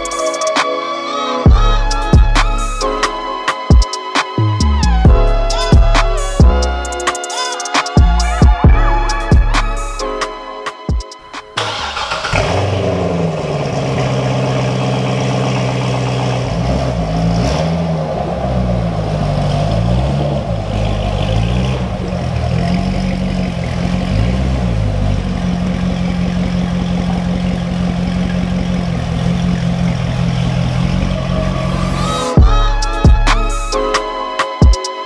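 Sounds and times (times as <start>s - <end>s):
car engine revving and idling: 11.2s - 34.4s.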